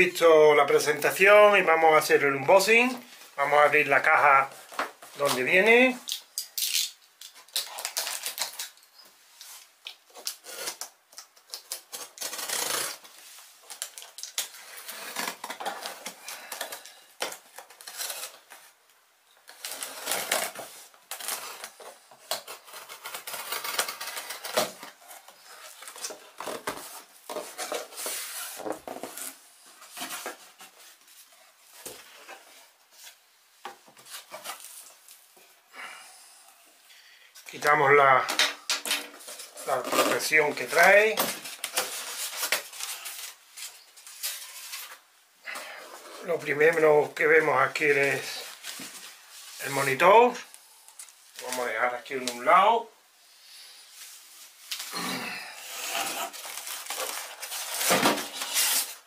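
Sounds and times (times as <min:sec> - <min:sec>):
cardboard flaps scraping and rustling: 0:19.5 - 0:35.0, 0:55.7 - 0:59.0.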